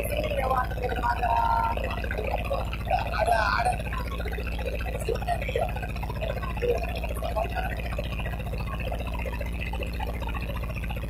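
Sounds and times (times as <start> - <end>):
voices talking: 0.0 - 8.0
boat engine droning: 0.0 - 11.0.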